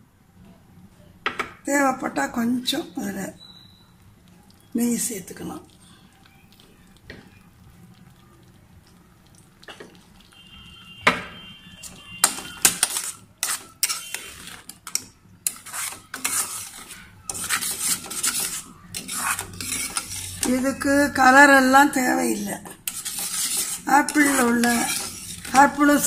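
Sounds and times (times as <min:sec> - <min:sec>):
metal spoon scraping a pan: 0:11.7 - 0:26.0.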